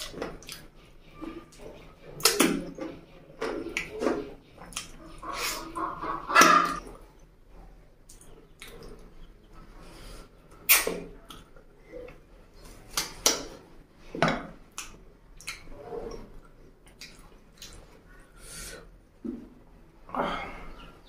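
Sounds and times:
wet smacking sounds: 2.1 - 5.6, 10.6 - 11.5, 12.1 - 13.7, 14.6 - 18.1.

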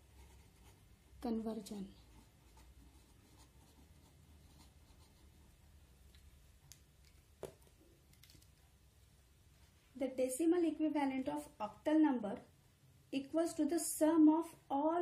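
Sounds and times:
marker pen scratching on paper: 0.0 - 5.7.

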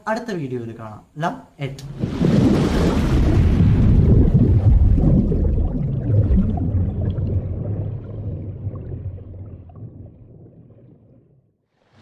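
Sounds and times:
stormy sea rumbling: 1.8 - 11.5.

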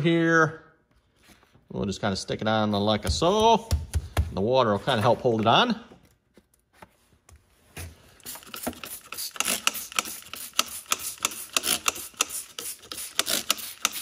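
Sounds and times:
spray bottle trigger clicks: 8.2 - 14.0
water spray hiss: 8.2 - 14.0.

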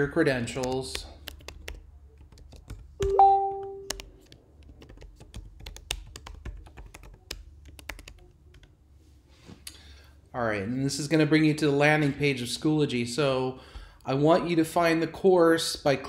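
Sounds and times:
computer keyboard typing: 0.4 - 8.7.

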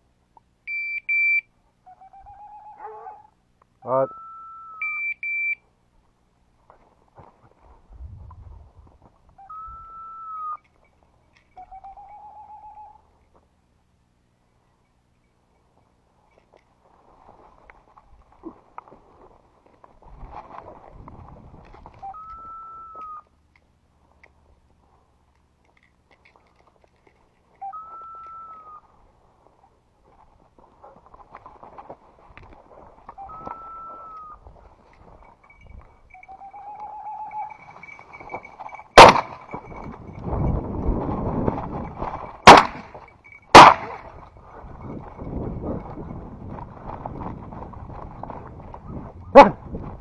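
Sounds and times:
high whistle-like tones: 4.0 - 5.6, 9.4 - 10.7, 22.0 - 23.3, 27.6 - 28.9, 33.1 - 34.4, 35.4 - 38.6
footsteps on gravel: 16.4 - 22.1, 24.5 - 35.6, 43.9 - 50.0
shotgun shots: 39.0 - 39.5, 42.4 - 42.9, 43.5 - 44.0.

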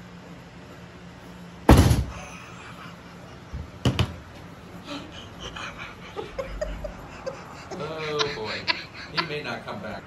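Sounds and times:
loud thump: 1.7 - 2.1
faint laughter: 4.8 - 10.0.

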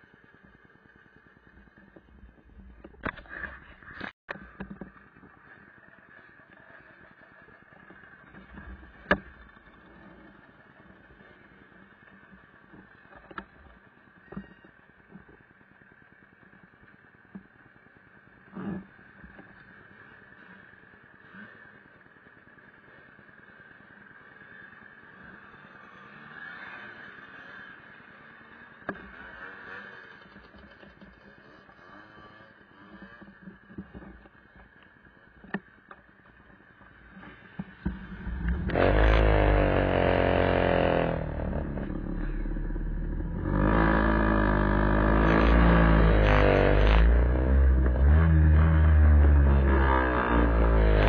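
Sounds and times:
faint road noise: 0.0 - 51.0
scooter engines passing: 18.4 - 51.0.

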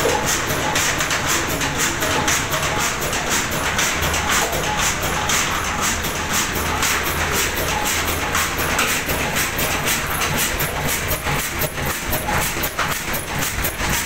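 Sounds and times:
stationary diesel engine running: 0.0 - 14.0.

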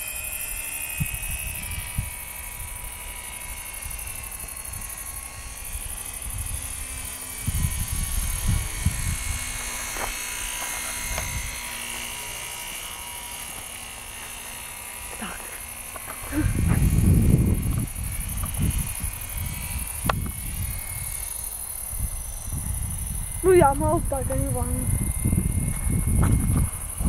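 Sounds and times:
distant rc plane motor buzzing: 0.0 - 27.0
wind buffeting microphone: 0.9 - 2.9, 3.8 - 12.2, 15.8 - 27.0.

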